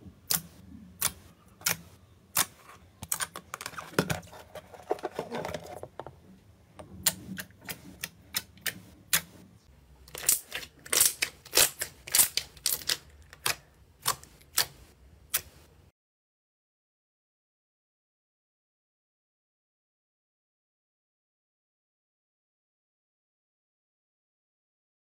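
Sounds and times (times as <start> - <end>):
slime popping and squelching: 10.1 - 15.5.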